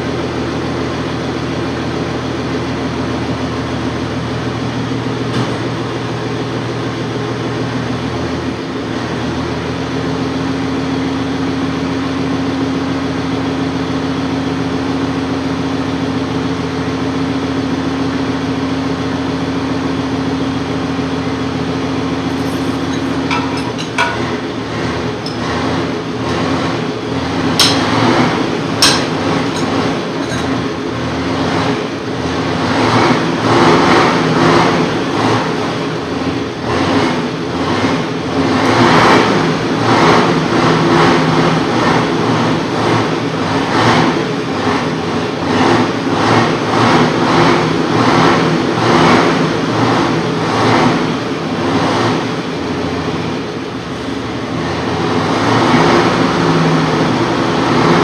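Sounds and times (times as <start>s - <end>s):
steady mechanical drone: 0.0s - 58.0s
hand tools clinking on metal: 22.3s - 24.5s, 27.6s - 28.2s, 28.8s - 30.7s.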